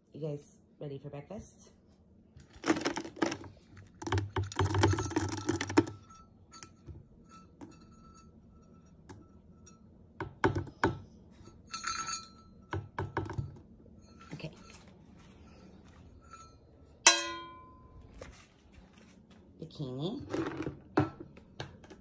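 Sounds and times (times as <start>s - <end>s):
metallic clinks: 11.5s - 12.8s.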